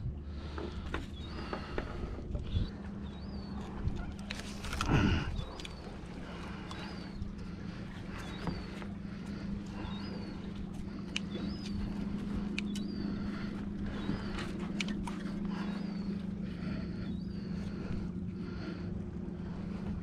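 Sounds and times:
low motor drone: 0.0s - 20.0s
sharp clicks: 11.0s - 13.2s.

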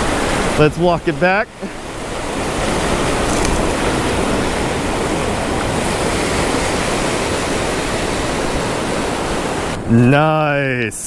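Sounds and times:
ocean surf breaking on beach: 0.0s - 10.6s.

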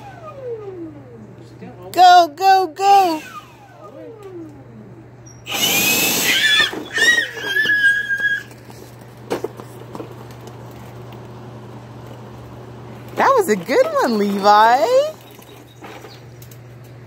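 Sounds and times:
leaf blower: 5.5s - 8.6s.

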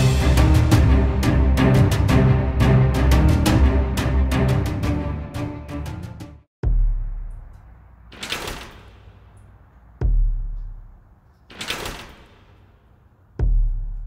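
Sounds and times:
deep booming thuds: 6.6s - 7.6s, 10.0s - 11.0s, 13.4s - 14.0s.

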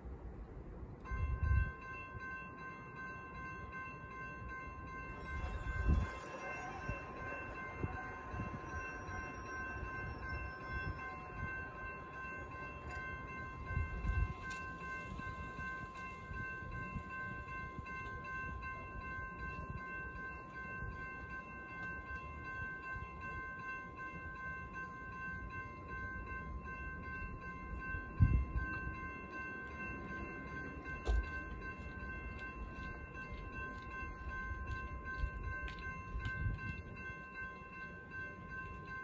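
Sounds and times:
railroad crossing bell ringing: 0.0s - 39.0s.

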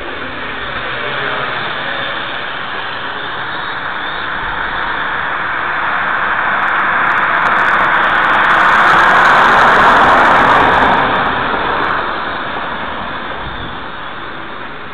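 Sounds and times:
drone propellers buzzing: 0.0s - 14.9s.

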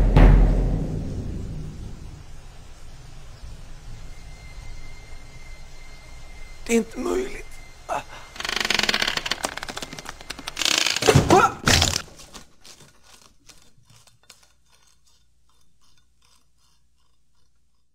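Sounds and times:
crash with heavy thuds: 0.0s - 2.2s
crackles and clicks: 6.7s - 17.9s
scraping and crunching: 8.2s - 17.9s.

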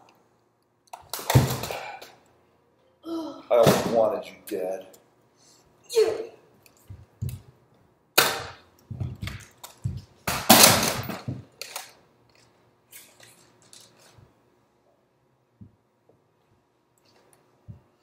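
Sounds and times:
toy blasters snapping and knocking: 0.9s - 2.0s.

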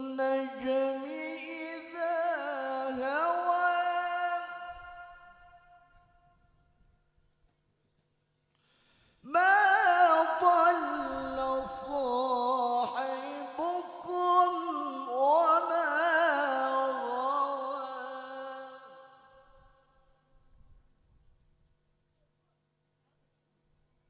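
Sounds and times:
man reciting melodically: 0.0s - 5.6s, 9.2s - 19.3s.

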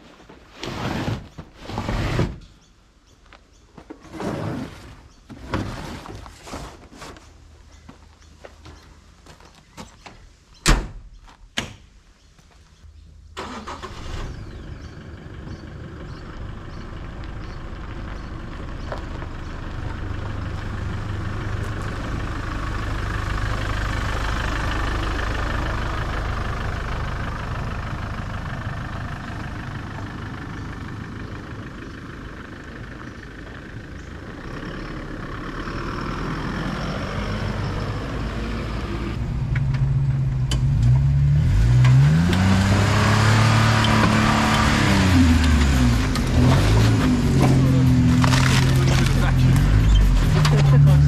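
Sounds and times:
car engine starting and running: 13.2s - 51.0s.

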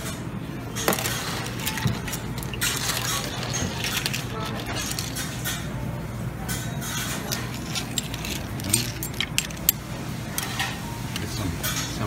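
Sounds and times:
shells clinking on metal: 7.2s - 9.9s.

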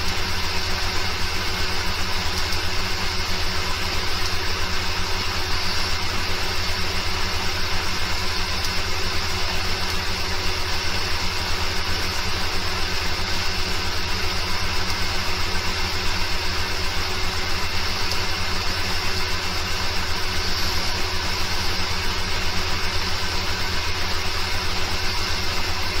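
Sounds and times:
low pulsing mechanical drone: 0.0s - 26.0s.

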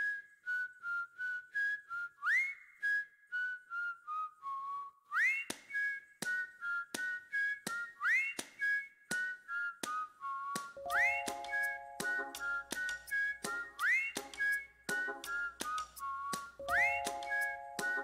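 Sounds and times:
whistled tune: 0.0s - 18.0s
sharp clicks keeping time: 10.6s - 18.0s.

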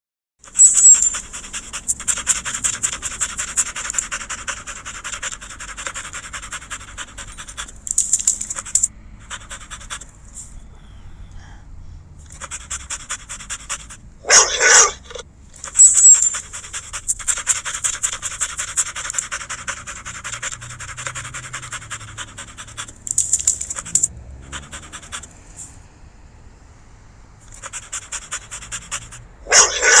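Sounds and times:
dog panting: 0.4s - 10.6s, 12.2s - 25.6s, 27.4s - 30.0s
dog barking: 14.2s - 15.2s, 28.9s - 30.0s.

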